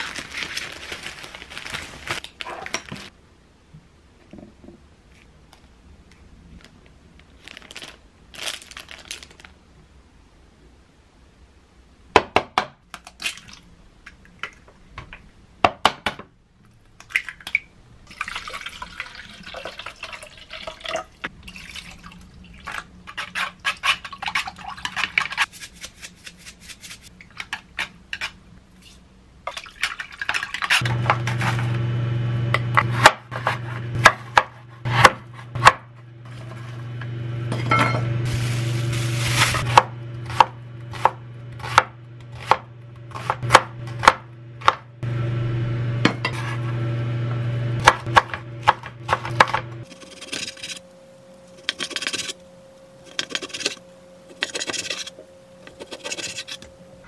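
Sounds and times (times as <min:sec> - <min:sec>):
steady low hum: 0:30.8 - 0:57.0
knife chopping on wooden board: 0:32.8 - 0:35.8, 0:39.7 - 0:44.8.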